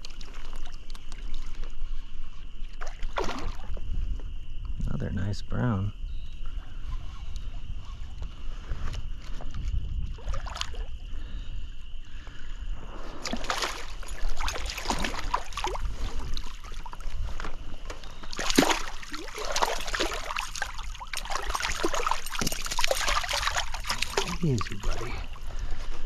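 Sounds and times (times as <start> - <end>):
water sloshing: 0.0 - 3.9, 9.2 - 11.5, 13.0 - 26.0
fish splashing at water surface: 2.7 - 3.8, 13.1 - 25.4.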